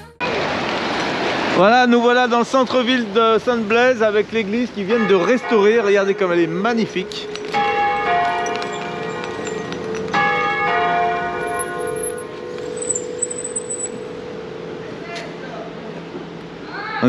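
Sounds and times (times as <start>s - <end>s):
church bells ringing: 4.5s - 16.6s.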